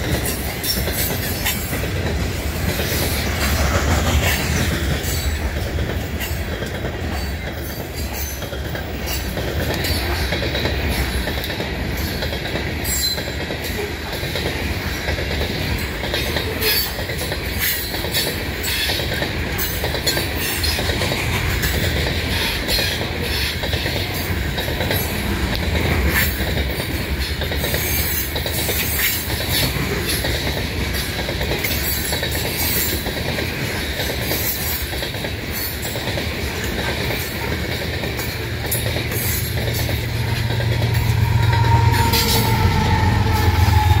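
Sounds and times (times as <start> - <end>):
train wheels rumbling on rail: 0.0 - 44.0
locomotive engine hum: 36.2 - 44.0.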